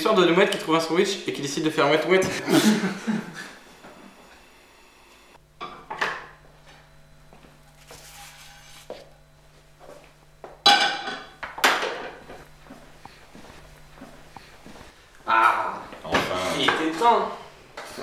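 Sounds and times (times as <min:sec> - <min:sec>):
frying pan and plates clattering: 0:10.7 - 0:12.2.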